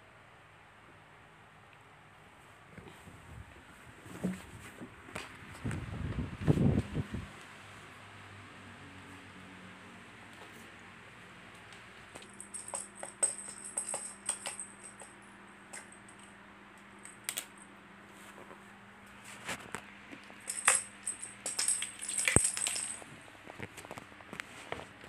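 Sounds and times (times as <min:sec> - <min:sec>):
toys jingling and clattering: 0:12.2 - 0:16.3, 0:20.4 - 0:23.2.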